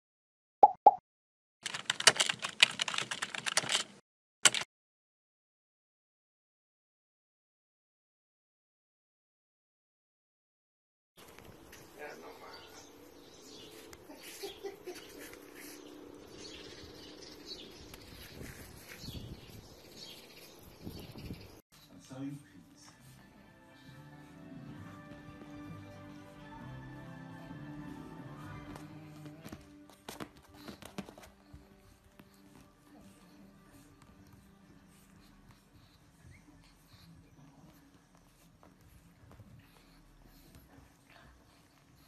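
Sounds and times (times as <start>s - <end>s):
keyboard typing: 1.6s - 4.7s
birds chirping: 11.2s - 21.6s.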